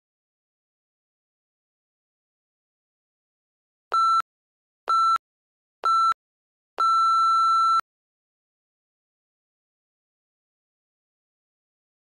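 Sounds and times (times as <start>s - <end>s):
electronic timer beeps: 3.9s - 4.2s, 4.9s - 5.2s, 5.8s - 6.2s, 6.8s - 7.8s.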